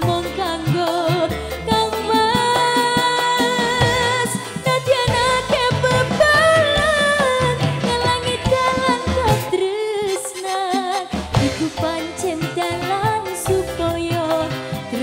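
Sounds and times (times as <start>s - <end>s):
live instrumental accompaniment: 0.0s - 15.0s
woman singing with vibrato: 0.0s - 15.0s.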